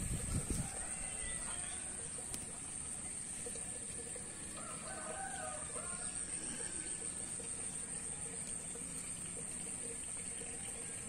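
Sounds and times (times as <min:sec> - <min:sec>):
rooster crowing: 0:00.5 - 0:02.2, 0:04.5 - 0:06.9.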